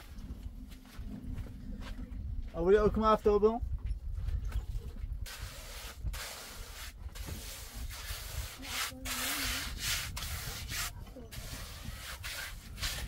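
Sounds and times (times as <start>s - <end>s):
hand tool scraping cement: 5.3s - 13.0s.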